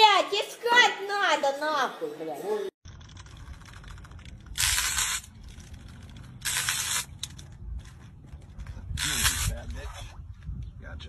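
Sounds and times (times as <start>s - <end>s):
fishing reel drag buzzing: 4.6s - 5.3s.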